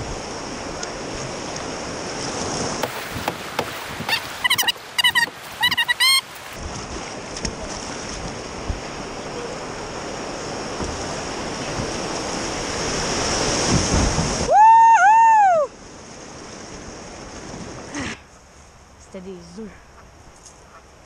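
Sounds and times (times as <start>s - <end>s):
wind on microphone: 0.0s - 15.0s
whitewater rapids rushing: 2.7s - 6.6s.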